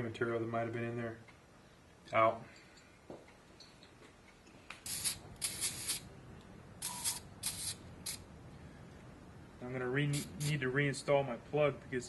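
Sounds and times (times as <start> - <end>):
air blow gun hissing: 4.8 - 6.1, 6.8 - 8.2, 10.0 - 10.6.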